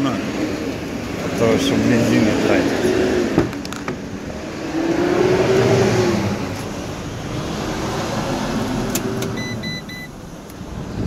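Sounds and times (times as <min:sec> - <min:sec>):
dashboard warning beeps: 0:09.3 - 0:10.2.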